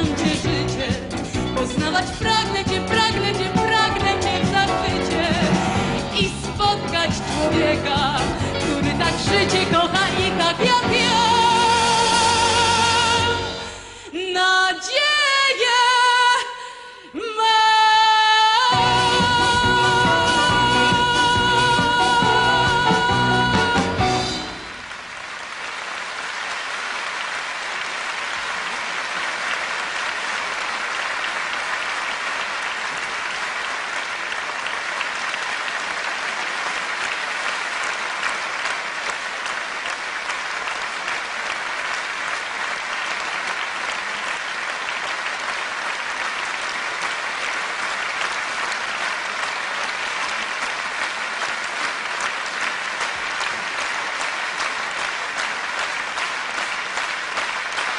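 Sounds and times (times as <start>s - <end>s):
audience applauding: 18.6s - 57.9s.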